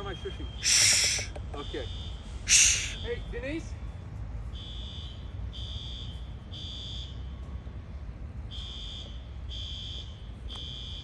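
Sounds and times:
electronic alarm beeping: 8.5 - 11.0.

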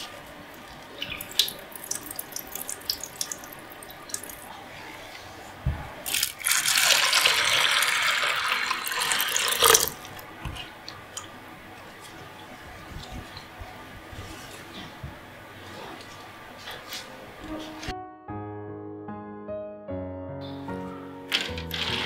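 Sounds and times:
water pouring onto grains: 6.1 - 10.0.

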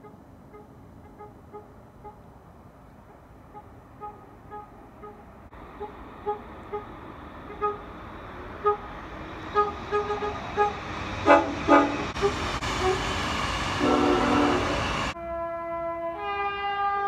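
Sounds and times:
train rumbling on track: 0.0 - 17.0
train horn toots: 3.5 - 5.2, 5.8 - 6.9, 7.5 - 7.9, 8.6 - 8.9, 9.5 - 13.1, 13.8 - 17.0.

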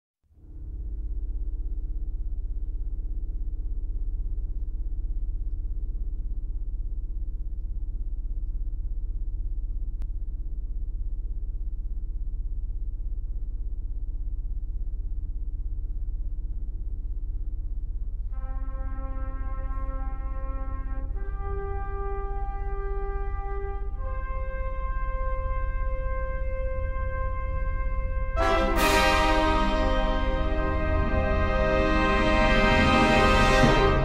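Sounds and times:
brass-like horn chord: 18.4 - 34.0
deep sustained drone: 25.0 - 34.0.

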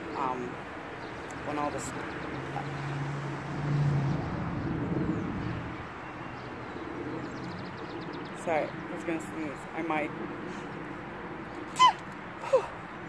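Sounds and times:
outdoor background noise: 0.0 - 13.0
vehicle engine passing: 1.4 - 7.9.

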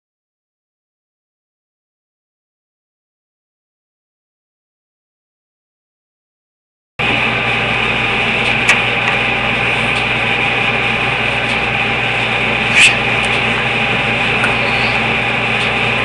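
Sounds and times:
machine hum with hiss: 7.0 - 16.0.

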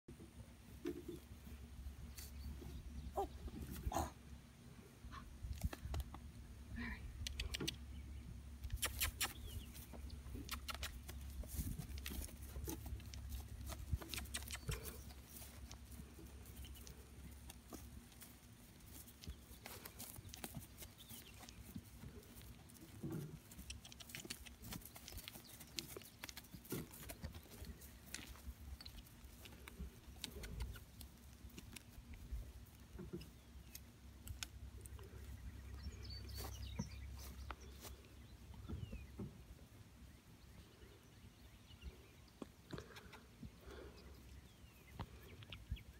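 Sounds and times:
hoof thuds on grass: 9.0 - 30.3.

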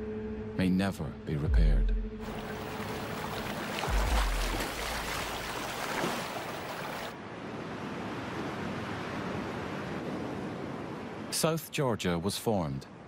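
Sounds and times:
wind: 0.0 - 13.0
ocean surf breaking: 2.2 - 11.4.

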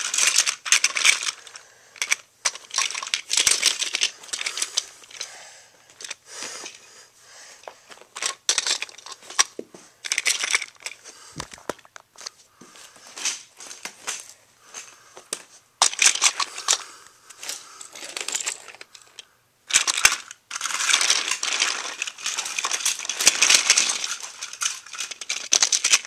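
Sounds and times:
toy train wheels clattering: 0.0 - 6.9, 7.6 - 11.0, 15.8 - 16.8, 17.4 - 26.0.

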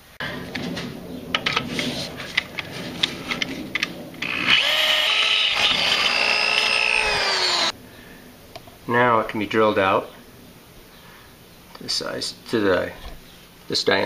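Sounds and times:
drill bit clicking and scraping: 4.2 - 7.7
electric drill whining: 4.2 - 7.7.

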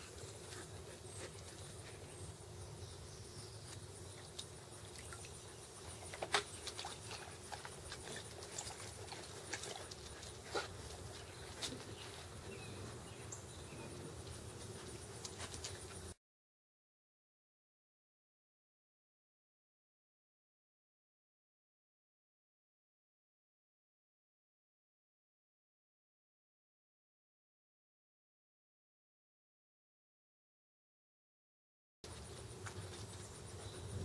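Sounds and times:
dogs lapping water splashes: 4.9 - 11.2.

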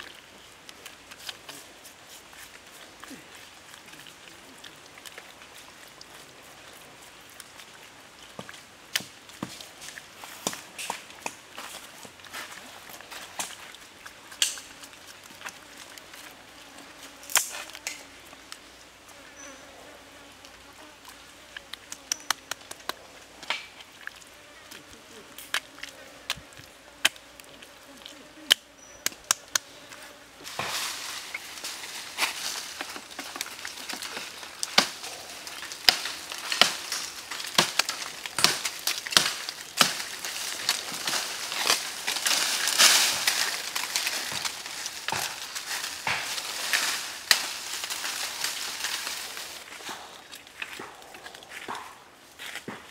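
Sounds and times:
foliage rustling: 0.0 - 52.9
woody stems snapping: 8.4 - 11.5, 13.2 - 16.1, 17.2 - 18.6, 21.6 - 24.2, 25.4 - 52.0
hands slapping raw chicken: 21.7 - 23.7.

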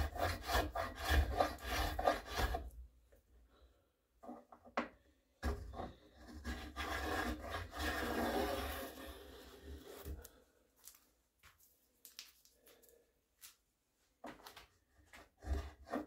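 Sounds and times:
hand tool rasping wood: 0.0 - 2.7, 5.4 - 10.2.

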